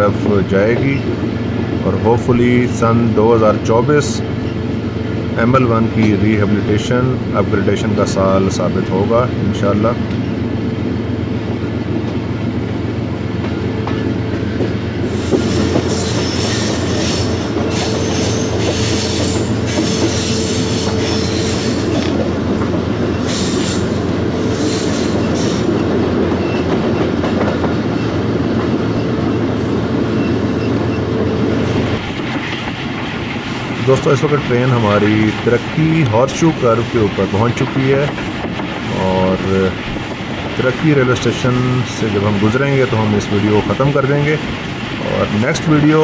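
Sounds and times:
train wheels rumbling on rail: 0:00.0 - 0:46.0
high-pitched wheel squeal: 0:15.5 - 0:21.9.

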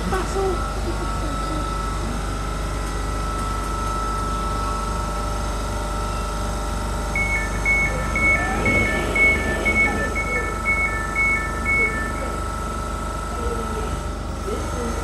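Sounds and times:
standing train hum: 0:00.0 - 0:15.0
two-tone door warning beeps: 0:07.0 - 0:13.0
train doors sliding open: 0:08.3 - 0:10.0.

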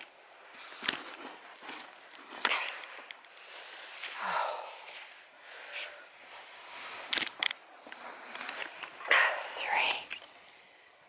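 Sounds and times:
clothing rustling: 0:00.4 - 0:09.2.

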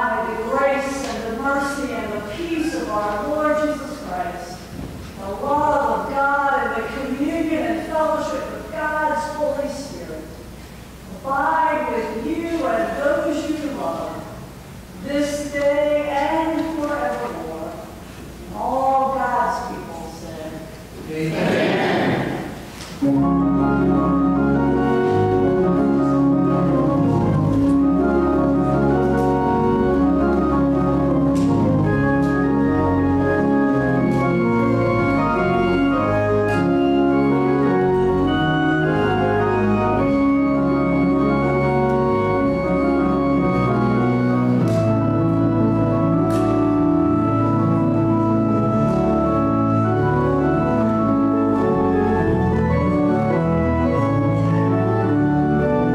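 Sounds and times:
pipe organ chords: 0:00.0 - 0:15.6, 0:20.8 - 0:55.9.

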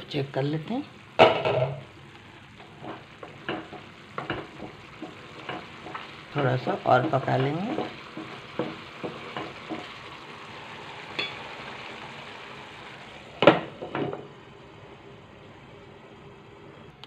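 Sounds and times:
lentils simmering bubbling: 0:00.0 - 0:17.0
spatula tapping pan: 0:02.6 - 0:10.2
glass lid clanking on pan: 0:11.1 - 0:11.6.

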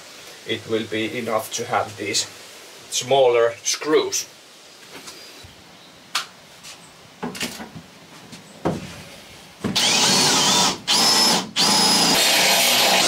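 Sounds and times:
power drill running: 0:09.8 - 0:13.0.

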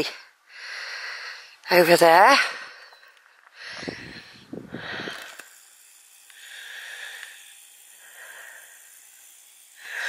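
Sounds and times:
person breathing: 0:00.0 - 0:01.6, 0:02.4 - 0:10.0.

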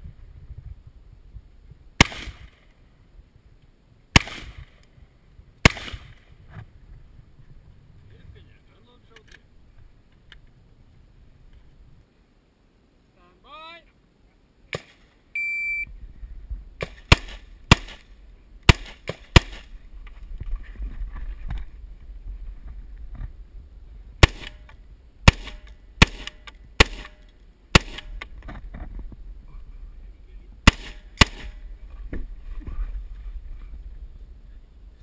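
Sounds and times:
rifle shots: 0:02.0 - 0:02.6, 0:04.1 - 0:04.8, 0:05.6 - 0:06.2, 0:16.8 - 0:18.1, 0:18.7 - 0:19.7, 0:24.2 - 0:28.2, 0:30.6 - 0:31.6.

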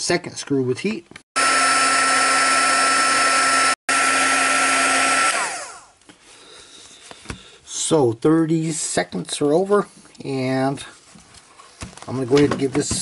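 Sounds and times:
heat gun blowing with whine: 0:01.4 - 0:06.0.

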